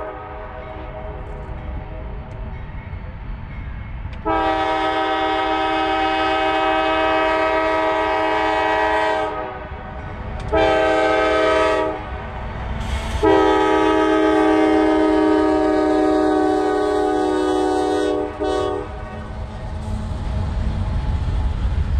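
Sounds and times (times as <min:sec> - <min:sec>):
low rumble of train: 0:00.0 - 0:21.9
locomotive air horn blasts: 0:04.2 - 0:09.6, 0:10.5 - 0:12.1, 0:12.9 - 0:19.6.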